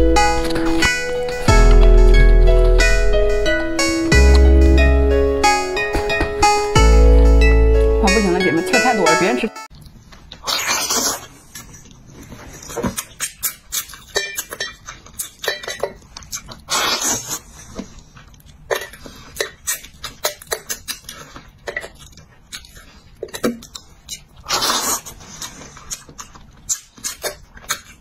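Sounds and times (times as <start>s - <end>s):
wet chewing and lip smacks: 9.7s - 28.0s.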